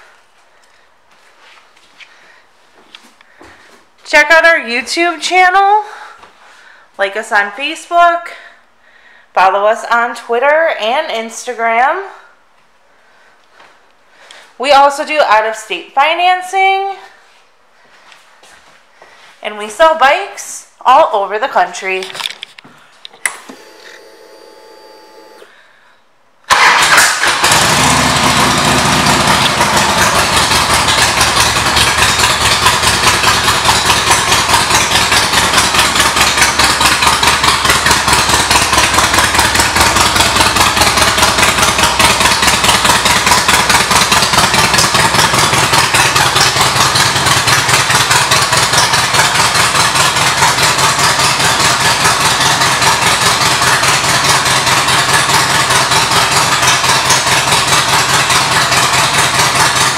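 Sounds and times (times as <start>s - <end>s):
motorcycle engine starting and idling: 23.2s - 25.6s, 26.5s - 59.9s.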